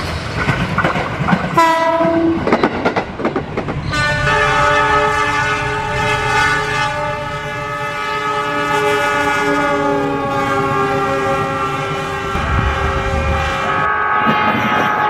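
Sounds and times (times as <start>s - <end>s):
low rumble of passing train: 0.0s - 15.0s
locomotive air horn blast: 1.6s - 2.4s, 3.9s - 15.0s.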